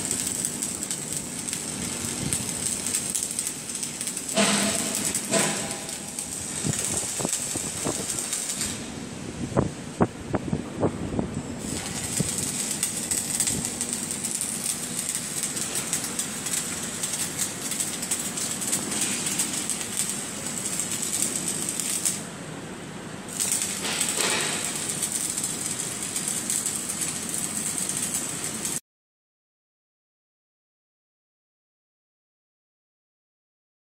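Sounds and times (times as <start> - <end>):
arc welding crackling hiss: 0.0 - 10.9, 11.6 - 28.8.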